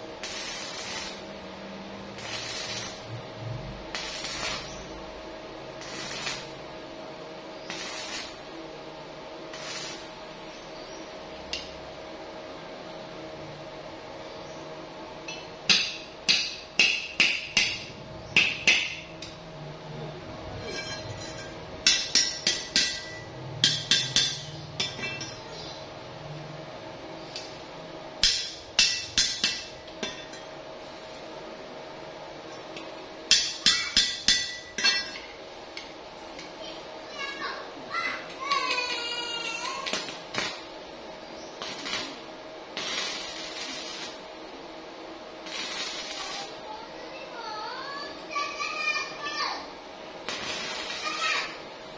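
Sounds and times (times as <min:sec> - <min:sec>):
welding arc hissing and crackling: 0:00.0 - 0:07.0, 0:07.6 - 0:08.6, 0:09.4 - 0:10.6, 0:38.2 - 0:44.4, 0:45.4 - 0:47.2, 0:50.2 - 0:51.9
steel rod tapping on metal: 0:20.7 - 0:25.4, 0:33.3 - 0:36.5.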